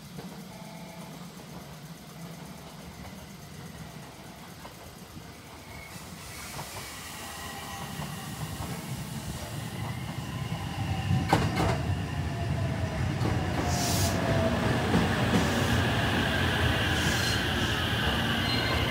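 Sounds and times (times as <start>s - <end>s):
electric train arriving: 0.0s - 18.9s
train wheels clacking: 1.2s - 12.0s
air hiss: 5.6s - 10.2s, 13.6s - 14.3s, 15.3s - 18.3s.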